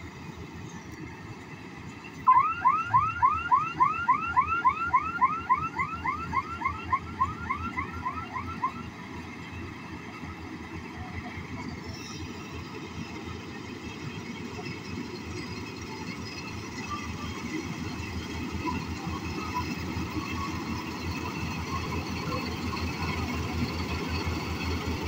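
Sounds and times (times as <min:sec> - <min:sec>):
combine harvester engine running: 0:00.0 - 0:25.0
electronic alarm chirping: 0:02.3 - 0:08.9.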